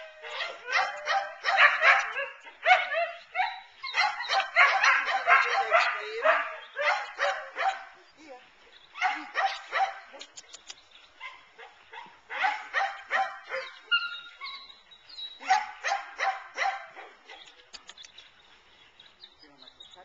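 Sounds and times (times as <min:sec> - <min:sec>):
dog barking: 0:00.3 - 0:08.0, 0:09.0 - 0:10.1, 0:11.2 - 0:13.8, 0:15.4 - 0:17.5.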